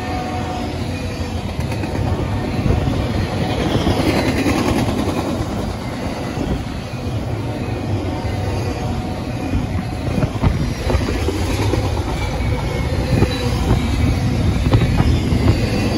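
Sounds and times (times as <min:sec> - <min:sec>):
freight train wheels rumbling: 0:00.0 - 0:15.9.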